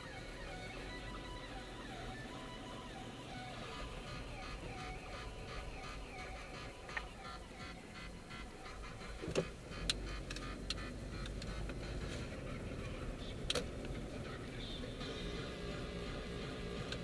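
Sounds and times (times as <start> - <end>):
engine and road rumble: 0.0 - 17.0
sharp clicks and knocks: 8.8 - 12.3.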